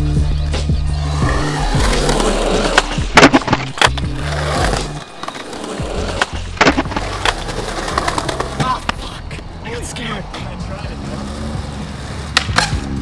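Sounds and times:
music with bass line: 0.0s - 5.0s
skateboard wheels rolling on concrete: 0.4s - 13.0s
skateboard clacks: 2.2s - 9.4s.

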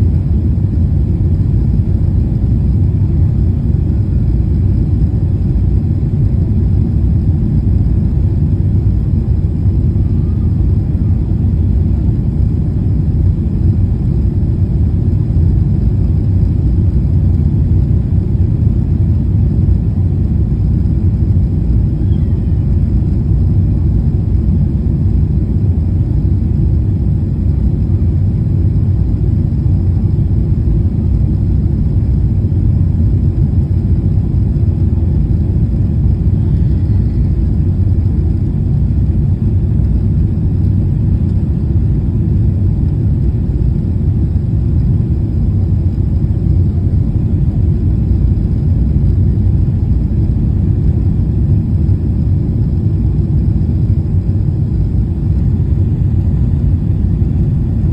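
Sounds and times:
airliner cabin engine rumble: 0.0s - 57.9s.

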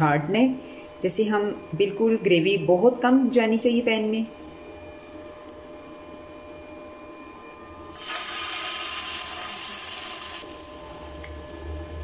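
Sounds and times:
chicken sizzling in hot oil: 7.9s - 10.5s.

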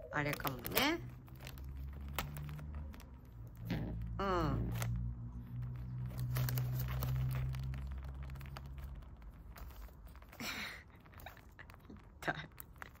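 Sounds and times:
low steady hum: 0.0s - 13.0s
newspaper rustling and crinkling: 0.0s - 13.0s
pigeon scuffling: 4.8s - 13.0s
pigeon pecking clicks: 5.6s - 13.0s.

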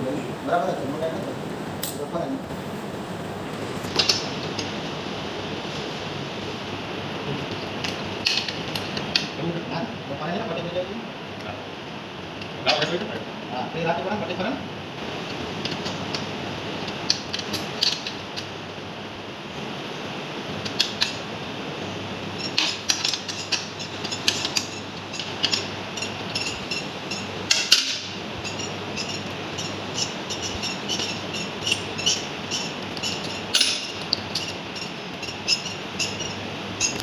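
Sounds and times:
steady background noise: 0.0s - 37.0s.

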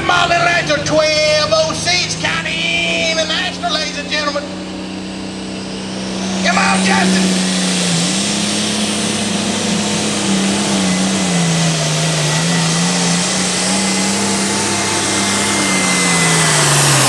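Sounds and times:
diesel tractor engine under load: 0.0s - 17.0s
thin high whine: 0.0s - 17.0s.

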